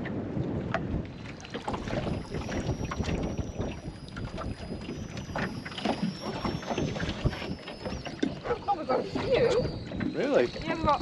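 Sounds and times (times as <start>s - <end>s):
knocks and splashes: 0.0s - 3.3s
water slapping against boat hull: 0.0s - 11.0s
wind on microphone: 0.0s - 11.0s.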